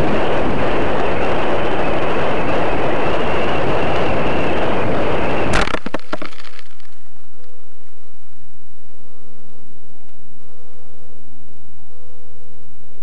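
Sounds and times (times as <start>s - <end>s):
sharp crack of landing: 5.5s - 7.0s.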